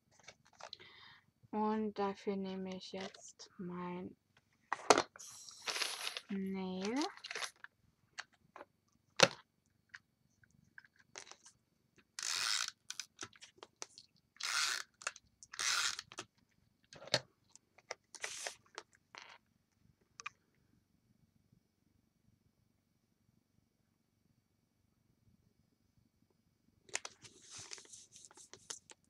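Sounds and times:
tape runner rasping across card: 15.6s - 16.2s.

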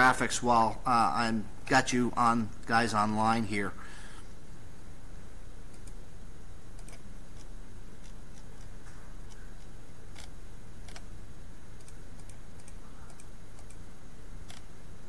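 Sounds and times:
low room hum: 0.0s - 15.0s
computer mouse clicks: 5.7s - 6.0s, 6.8s - 8.7s, 9.3s - 11.1s, 11.8s - 13.8s.

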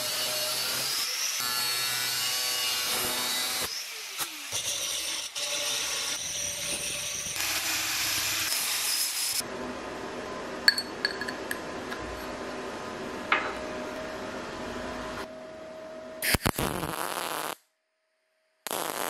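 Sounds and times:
angle grinder cutting steel: 0.0s - 9.4s.

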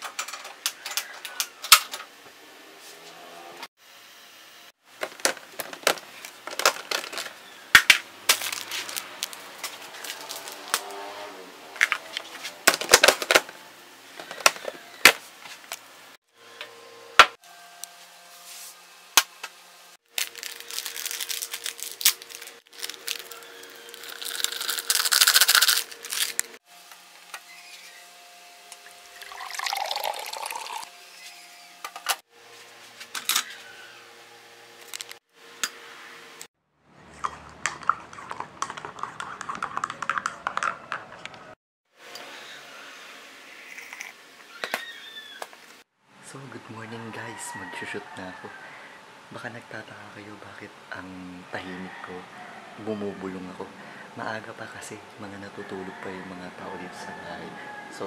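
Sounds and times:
liquid pouring: 29.1s - 30.9s.

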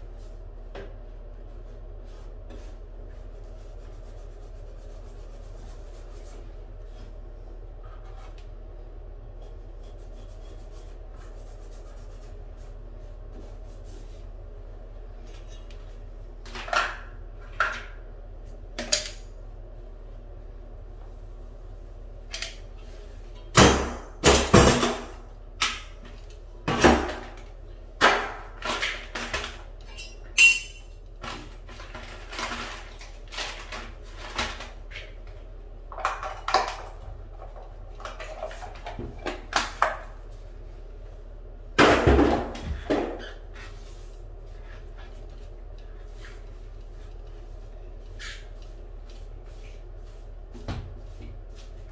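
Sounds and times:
tools clattering on tile floor: 28.6s - 31.0s.

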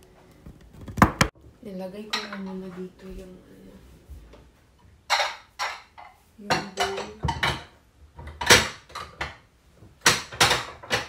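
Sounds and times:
ceramic plates clattering: 5.1s - 11.0s.

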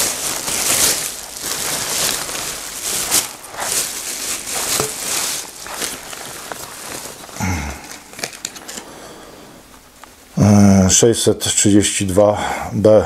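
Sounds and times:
plastic bag crinkling: 0.0s - 10.3s.

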